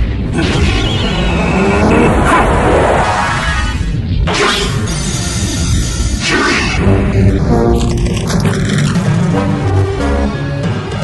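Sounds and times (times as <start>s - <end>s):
dramatic background music: 0.0s - 11.0s
rushing energy blast effect: 0.3s - 4.0s.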